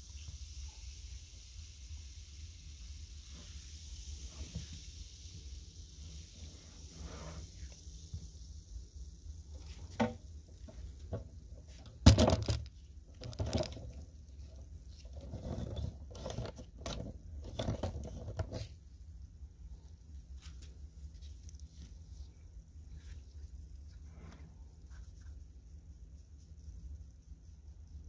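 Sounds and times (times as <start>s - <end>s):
liquid sloshing in plastic basin: 11.0s - 18.7s.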